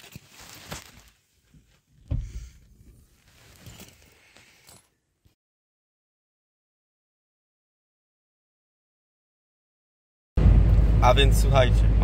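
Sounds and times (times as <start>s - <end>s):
dull thump: 2.0s - 2.6s.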